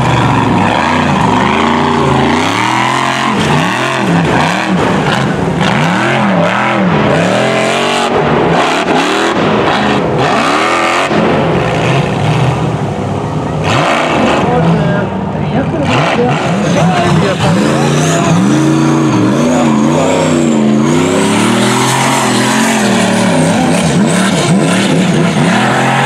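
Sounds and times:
buggy engine revving hard: 0:00.0 - 0:26.0.

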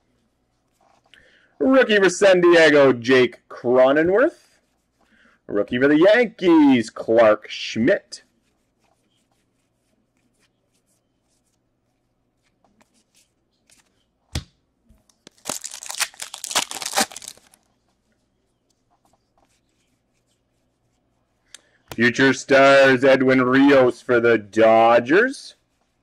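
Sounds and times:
wrapper tearing open: 0:15.3 - 0:17.6.

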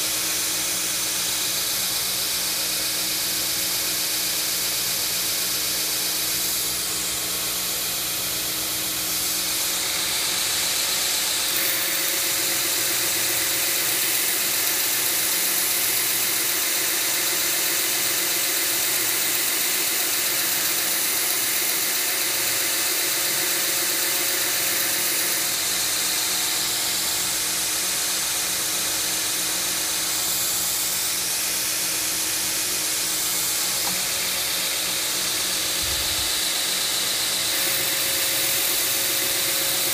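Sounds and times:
belt grinder humming: 0:06.3 - 0:28.3, 0:29.3 - 0:39.9
steel blade grinding hiss: 0:32.7 - 0:39.9.

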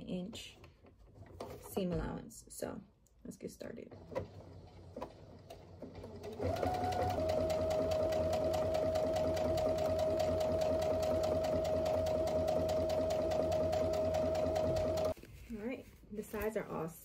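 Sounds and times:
sewing machine stitching: 0:03.8 - 0:15.2.

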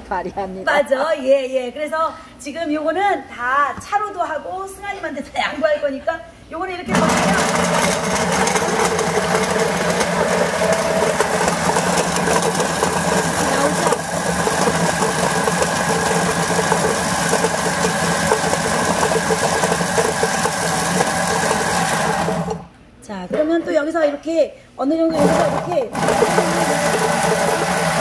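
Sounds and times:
machine motor hum: 0:06.9 - 0:22.7, 0:25.2 - 0:28.0
chestnuts rattling in spinning bowl: 0:07.0 - 0:22.7, 0:25.2 - 0:28.0.

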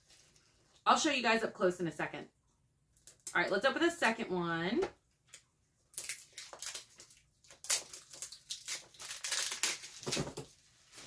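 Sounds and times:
cardboard tearing and crunching: 0:06.0 - 0:10.5.

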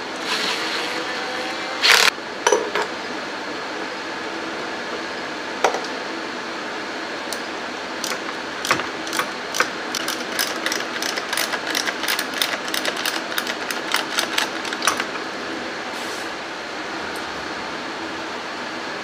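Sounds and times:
ratchet wrench clicking: 0:08.0 - 0:15.2.

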